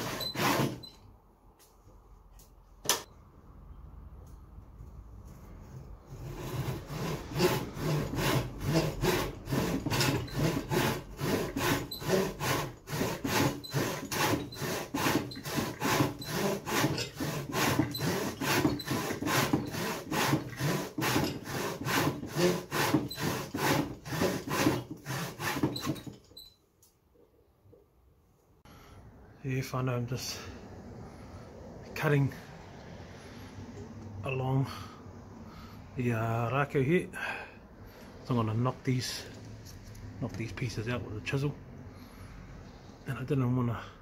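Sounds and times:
hand saw cutting wood: 0.0 - 0.9, 5.7 - 26.2.

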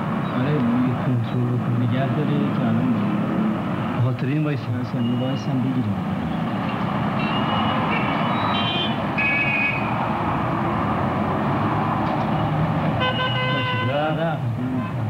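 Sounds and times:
engine and tyre noise: 0.0 - 15.0
car horn: 7.2 - 10.0, 13.0 - 14.1.

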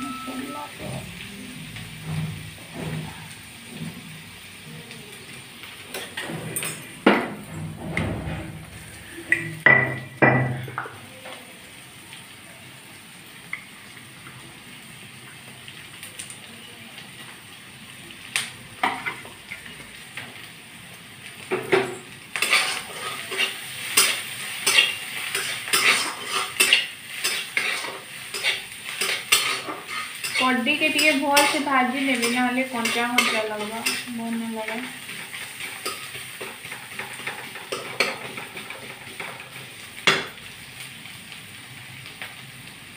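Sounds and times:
food sizzling in oil: 0.0 - 42.9
metal spatula scraping pan: 22.4 - 34.2.

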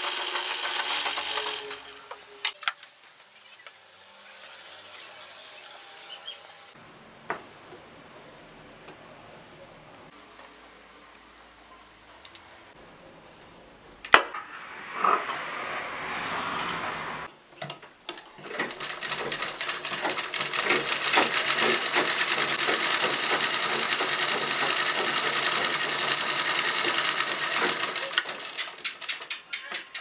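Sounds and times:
sewing machine stitching: 0.0 - 2.0, 18.4 - 29.4.

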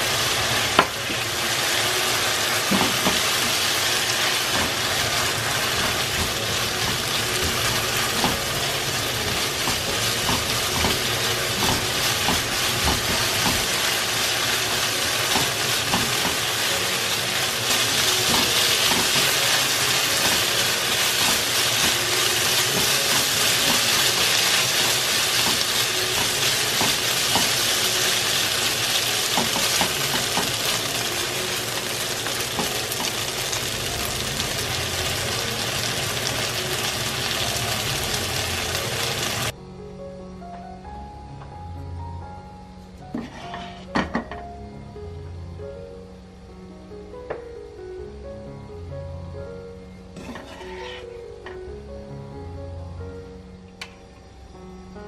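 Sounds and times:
meat sizzling in a frying pan: 0.0 - 39.5
spatula knocking on pan: 9.3 - 13.8, 25.4 - 27.6, 29.3 - 30.6
spatula scraping a pan: 43.1 - 44.0, 50.2 - 51.2.

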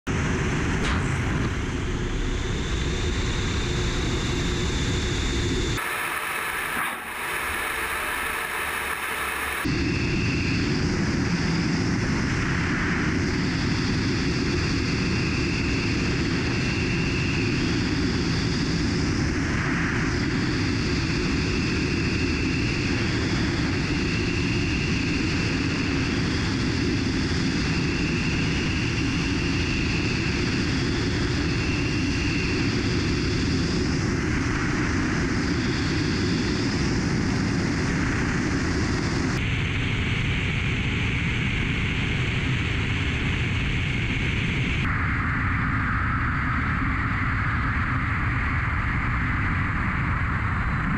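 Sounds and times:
jet engines droning: 0.1 - 50.9
faint high whine: 0.2 - 50.9
rush of airflow: 5.8 - 10.0.

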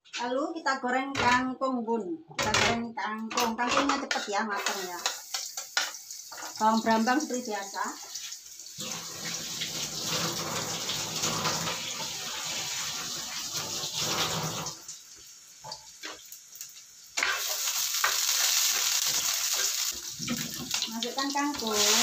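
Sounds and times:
water running from tap into sink: 4.6 - 16.2, 18.0 - 22.0.

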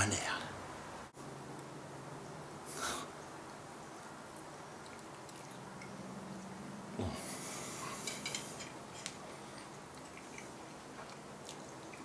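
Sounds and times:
breath out through nose: 2.7 - 3.1
man chewing food: 7.0 - 12.0.

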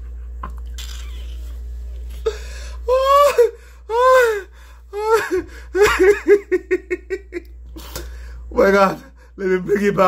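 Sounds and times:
man laughing hard: 2.9 - 7.5.

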